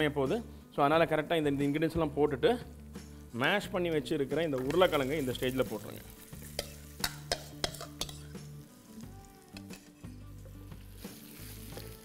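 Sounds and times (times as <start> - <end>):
potato sizzling in hot oil: 4.5 - 10.0, 10.8 - 12.0
spatula tapping a pan: 6.6 - 8.2.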